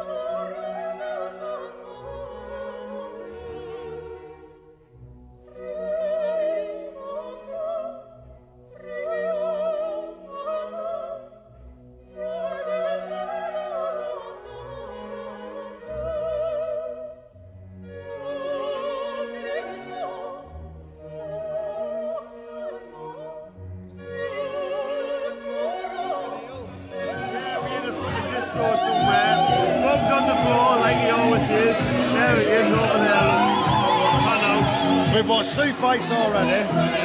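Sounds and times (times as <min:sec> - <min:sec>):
sustained orchestral strings: 0:00.0 - 0:37.0
operatic voice singing: 0:24.2 - 0:37.0.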